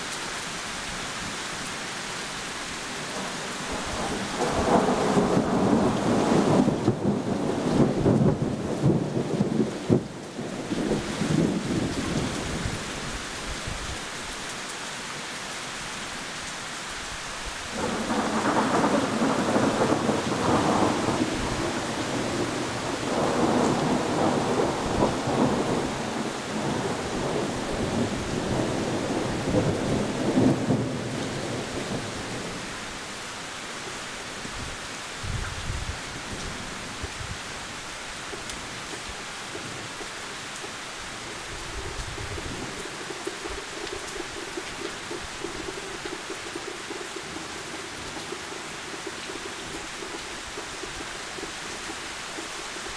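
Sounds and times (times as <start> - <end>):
heavy rain falling: 0.0 - 52.9
thunder rumbling: 3.1 - 12.9, 17.7 - 32.6.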